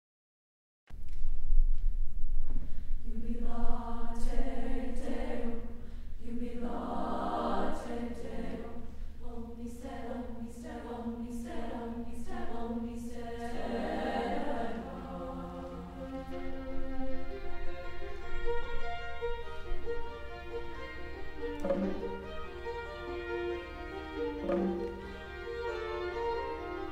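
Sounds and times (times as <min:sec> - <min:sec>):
women's choir singing a cappella: 0:03.0 - 0:16.6.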